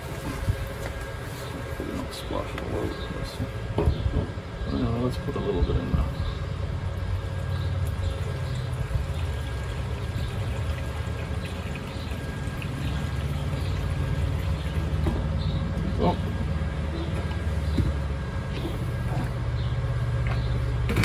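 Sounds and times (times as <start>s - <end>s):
fuel trickling through funnel: 6.1s - 16.8s.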